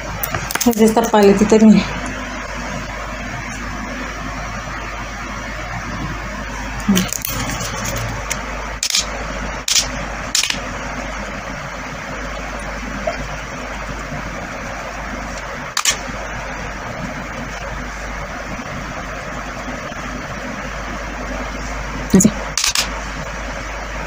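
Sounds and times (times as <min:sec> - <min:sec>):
steady rushing noise: 0:01.3 - 0:24.0
sharp clicks: 0:09.7 - 0:10.6, 0:22.6 - 0:22.9.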